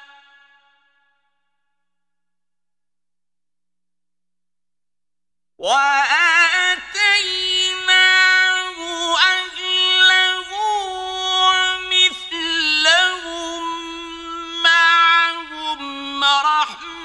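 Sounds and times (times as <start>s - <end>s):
man chanting recitation: 5.6s - 17.0s.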